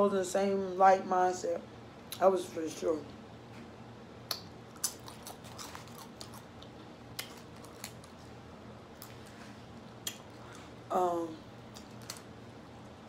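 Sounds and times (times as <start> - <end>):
chips being chewed: 4.3 - 8.3, 11.7 - 12.3.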